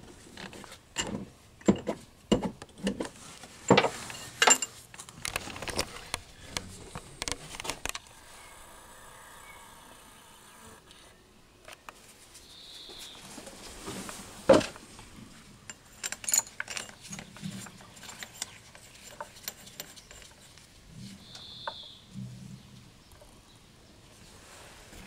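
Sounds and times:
bolts clinking against metal: 1.0s - 3.1s, 3.7s - 5.6s, 15.7s - 20.5s.

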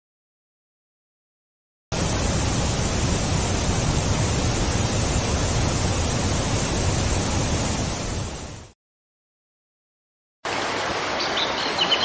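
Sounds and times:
waterfall rushing: 2.0s - 8.7s, 10.5s - 12.0s.

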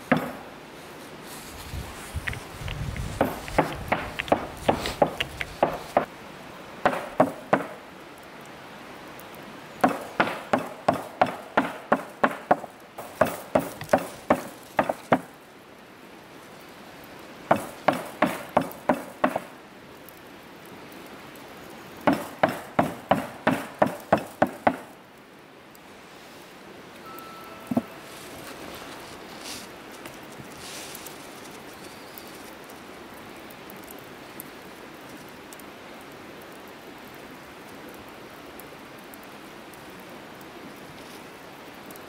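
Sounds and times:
stone pounding on wooden board: 0.1s - 0.4s, 17.5s - 19.5s, 22.1s - 24.8s.

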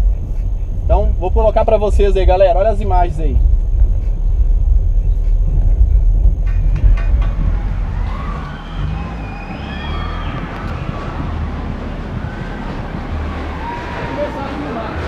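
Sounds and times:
heavy subwoofer bass: 0.0s - 15.0s
car alarms wailing: 7.2s - 15.0s.

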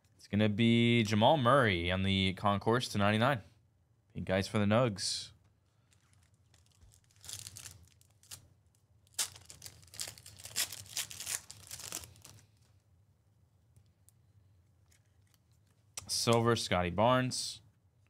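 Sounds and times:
wrappers ripping and crinkling: 5.8s - 12.7s.

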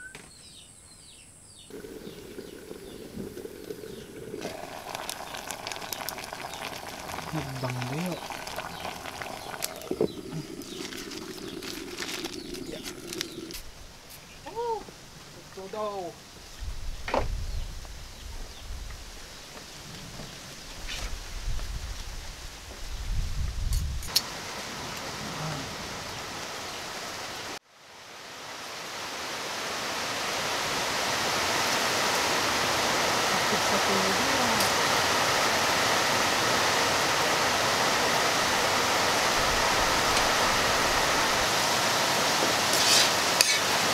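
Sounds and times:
bird call: 0.0s - 3.0s
rain hiss: 1.5s - 43.9s
wood fire crackling: 1.7s - 16.6s.

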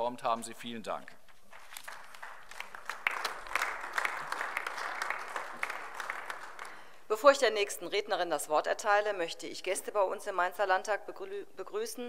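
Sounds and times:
crowd applauding: 1.5s - 7.0s.

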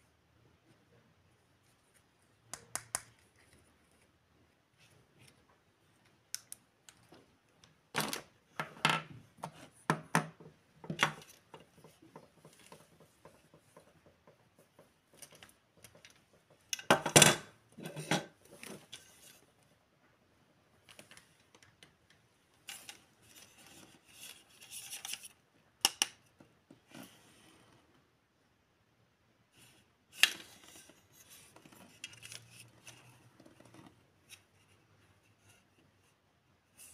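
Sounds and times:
plastic toys clicking and tapping: 6.0s - 19.1s, 24.7s - 26.5s.

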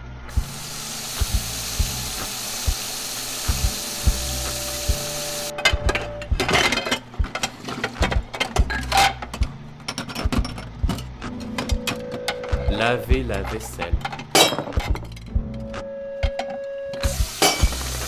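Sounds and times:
background music with beat: 0.3s - 18.0s
china plates clinking: 13.6s - 15.3s.

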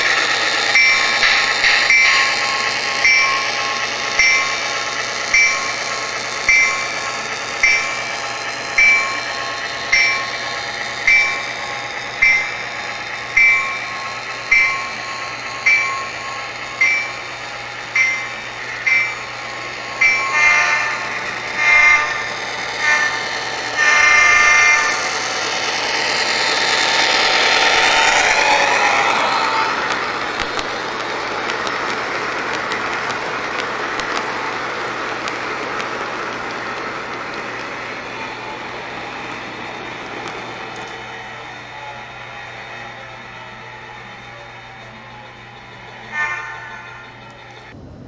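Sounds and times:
locomotive bell ringing: 0.0s - 47.8s
rushing rolling noise: 0.0s - 48.0s
locomotive horn blasts: 20.2s - 25.1s, 46.0s - 47.2s.

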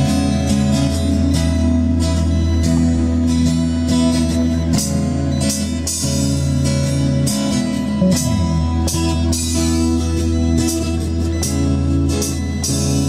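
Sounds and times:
acoustic guitar strumming: 0.0s - 13.0s
bass guitar: 0.0s - 13.0s
electronic drum kit beat: 0.0s - 13.0s.

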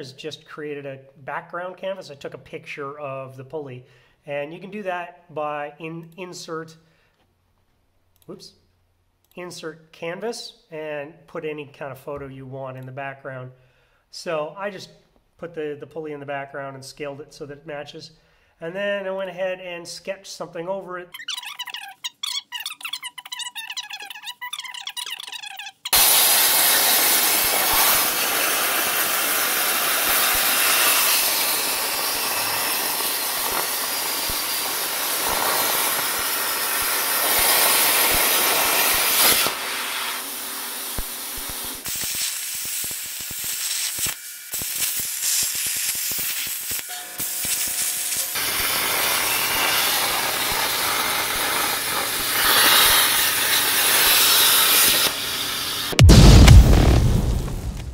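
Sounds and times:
plasma cutter arc hissing: 25.9s - 56.0s.

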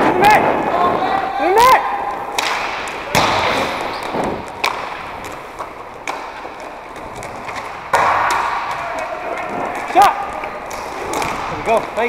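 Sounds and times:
hockey sticks and puck clacking: 0.0s - 12.0s.

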